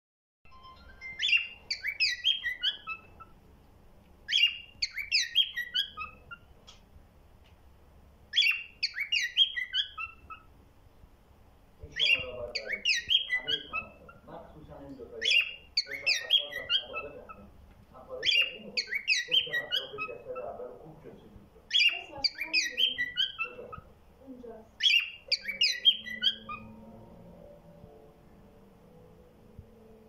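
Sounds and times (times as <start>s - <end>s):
cockatiel whistling: 0.8s - 3.4s, 4.3s - 6.5s, 8.3s - 10.5s, 12.0s - 14.3s, 15.2s - 17.5s, 18.2s - 20.6s, 21.7s - 23.9s, 24.8s - 28.0s.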